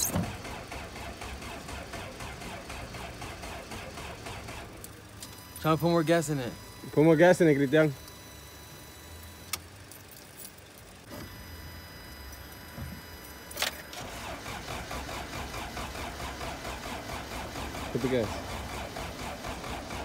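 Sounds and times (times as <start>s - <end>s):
car engine cranking: 0.0s - 6.5s, 13.4s - 20.0s.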